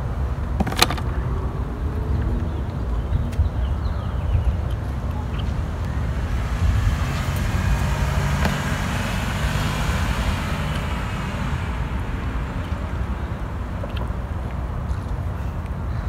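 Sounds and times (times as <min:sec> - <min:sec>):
low traffic rumble: 0:00.0 - 0:16.0
car passing by: 0:04.9 - 0:15.0.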